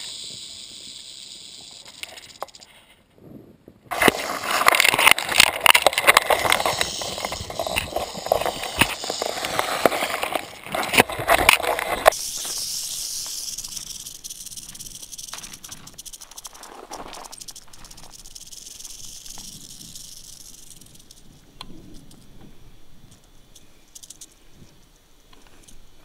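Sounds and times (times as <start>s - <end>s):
rattlesnake tail rattling: 0.0s - 2.9s, 3.9s - 25.8s
dry grass scraping camera: 3.9s - 21.2s.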